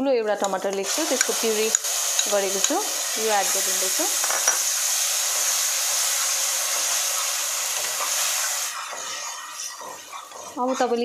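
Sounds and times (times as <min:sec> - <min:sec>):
tomato puree sizzling in oil: 0:00.0 - 0:11.0
metal spatula stirring: 0:04.2 - 0:11.0.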